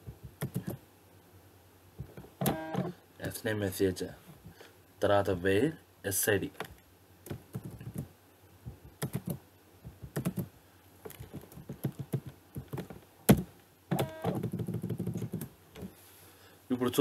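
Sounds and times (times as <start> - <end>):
computer keyboard typing: 0.4 - 0.8, 9.0 - 9.4, 10.1 - 10.5, 11.1 - 12.8, 14.0 - 15.5.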